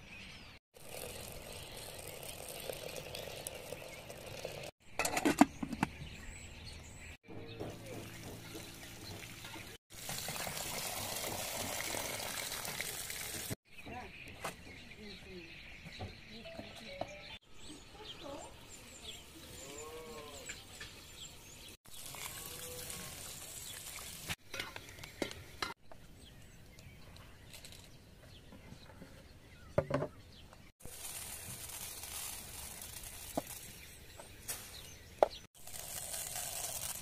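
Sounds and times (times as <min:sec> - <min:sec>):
rice grains poured on a metal tray: 0:30.9 - 0:33.8, 0:35.6 - 0:37.0.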